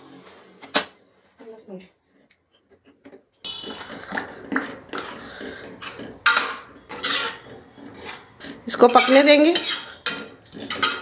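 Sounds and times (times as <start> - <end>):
metal masher scraping mash in pot: 3.6 - 11.0.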